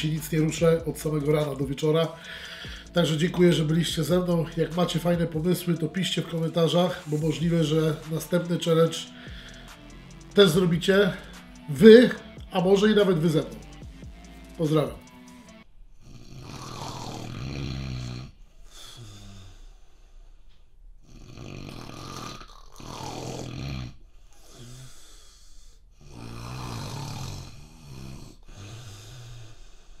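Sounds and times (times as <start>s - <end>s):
man snoring: 0.0s - 20.3s, 21.0s - 30.0s
soft breath: 2.1s - 2.9s, 9.0s - 9.9s, 24.0s - 26.1s.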